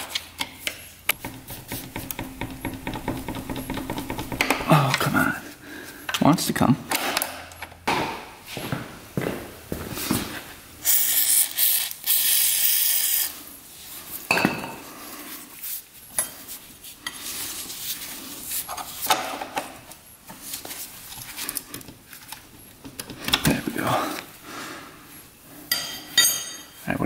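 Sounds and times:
metal tool clinks and scrapes: 25.7 - 26.9.

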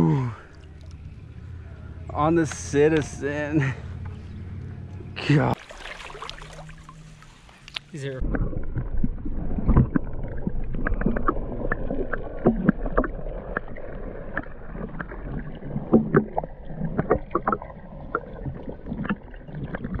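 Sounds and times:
clicks and knocks underwater: 5.8 - 20.0.

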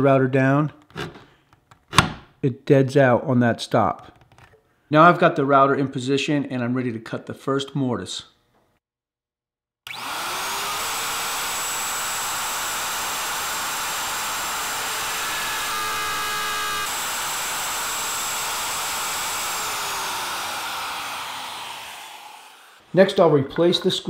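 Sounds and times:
router cutting wood: 9.9 - 22.9
router whining: 9.9 - 22.9.

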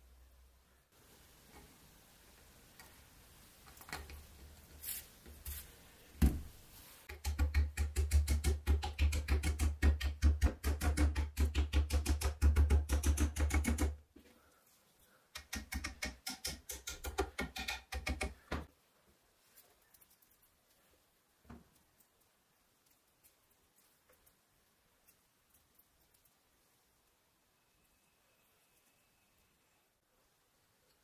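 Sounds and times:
hammer tapping wood: 15.4 - 18.7.

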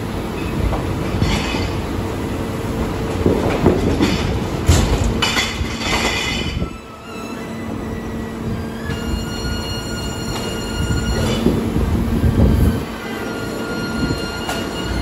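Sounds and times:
garbage truck humming: 0.0 - 15.0
metallic squeals and scraping: 5.3 - 15.0.

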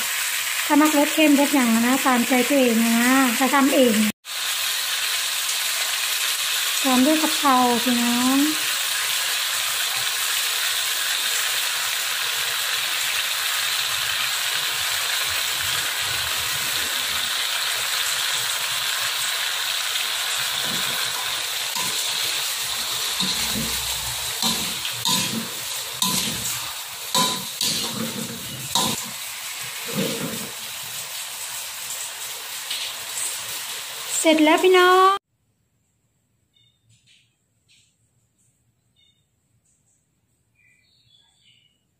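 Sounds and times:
food sizzling in a wok: 0.0 - 35.2
metal spatula scraping a wok: 20.5 - 29.2, 29.8 - 30.6.

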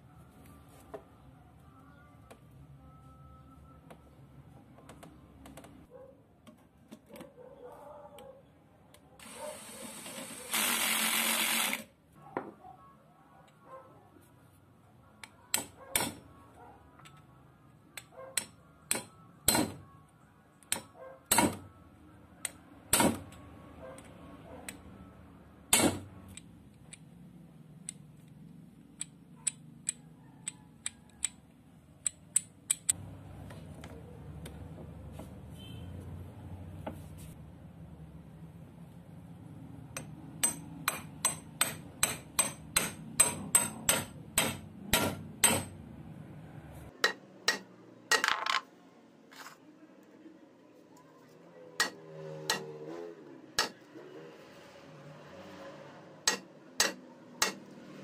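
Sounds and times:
sharp metallic clicks and knocks: 32.0 - 33.0, 39.9 - 45.8, 47.0 - 48.6, 51.8 - 52.8, 53.6 - 53.8, 56.2 - 57.8.

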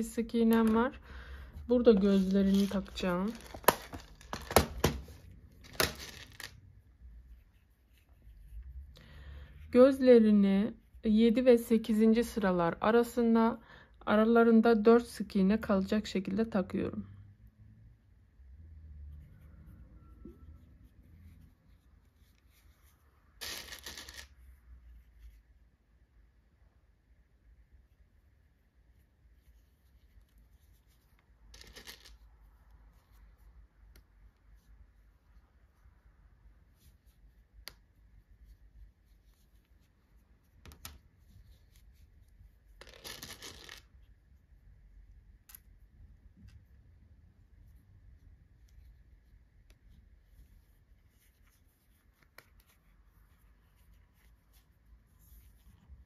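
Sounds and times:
faint rustling of handled yarn toy: 0.0 - 13.6, 18.1 - 56.0
plastic pieces rattling in box: 2.5 - 4.6, 5.7 - 6.6.

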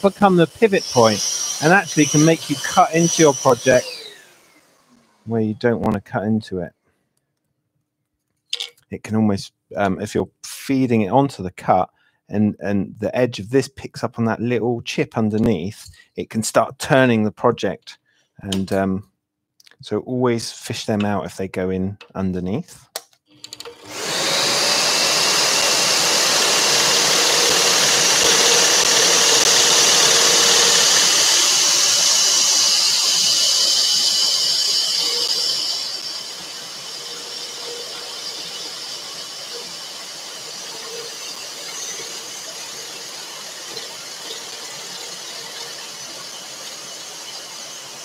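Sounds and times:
scroll saw cutting wood: 0.0 - 5.5, 23.4 - 48.0.

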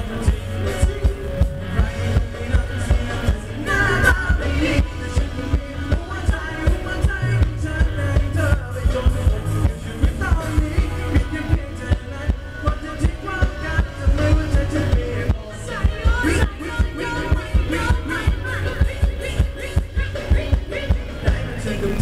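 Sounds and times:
live band dance music: 0.0 - 22.0
person singing: 0.0 - 22.0.

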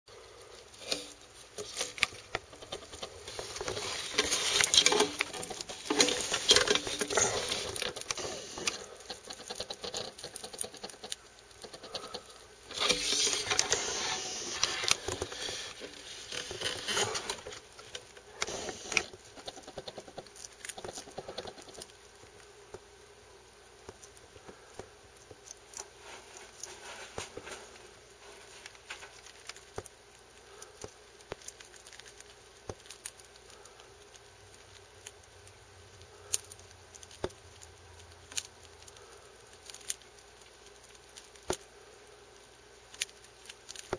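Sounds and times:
centipede scratching over soil: 0.7 - 11.1, 11.7 - 19.2.

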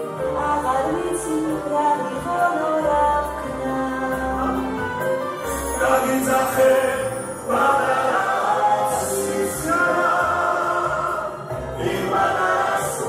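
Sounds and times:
woman singing: 0.0 - 5.0
musical accompaniment: 0.0 - 13.0
man singing: 5.8 - 8.1.

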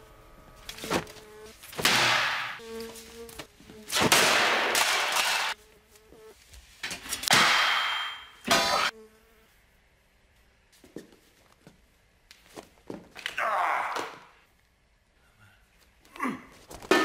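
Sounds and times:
housefly buzzing: 0.3 - 6.4, 8.7 - 9.6
loud metallic clangs: 7.3 - 8.9.

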